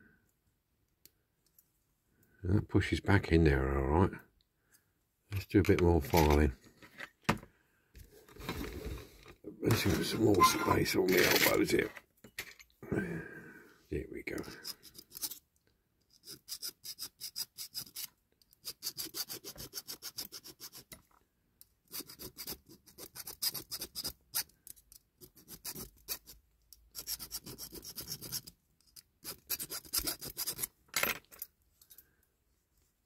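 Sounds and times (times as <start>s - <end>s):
hand file rasping on metal: 16.2s - 20.9s, 21.9s - 24.5s, 25.2s - 28.5s, 29.2s - 30.7s.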